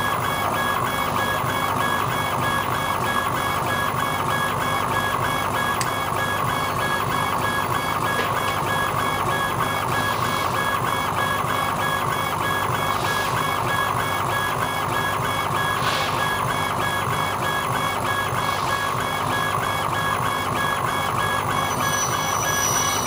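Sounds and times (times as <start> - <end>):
stepper motors whining: 17.7 - 23.0.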